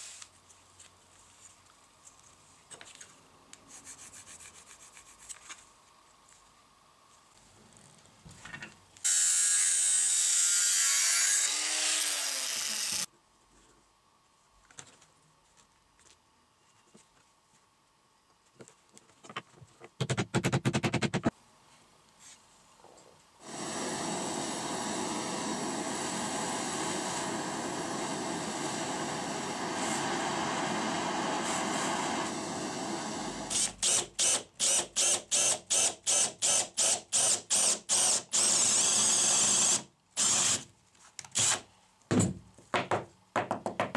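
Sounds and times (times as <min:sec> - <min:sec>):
drill boring into wood: 0:09.1 - 0:13.1, 0:23.4 - 0:40.6, 0:41.4 - 0:41.6
power tool running: 0:09.1 - 0:13.1, 0:23.4 - 0:40.6.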